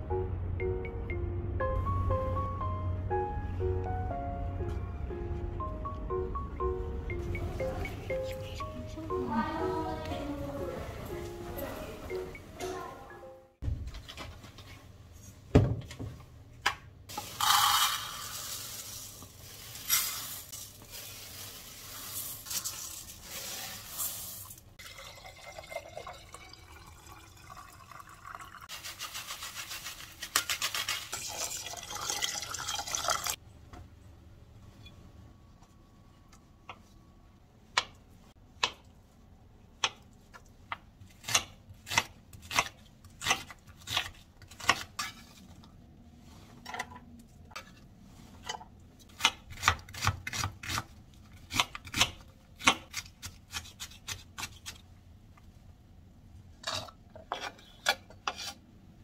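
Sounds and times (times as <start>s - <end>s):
water sloshing in a pot: 22.8s - 28.9s, 30.9s - 33.4s.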